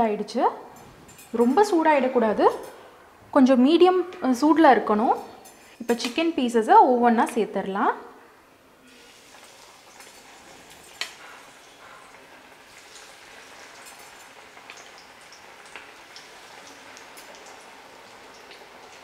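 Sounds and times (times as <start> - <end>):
chicken deep-frying in oil: 8.8 - 19.0.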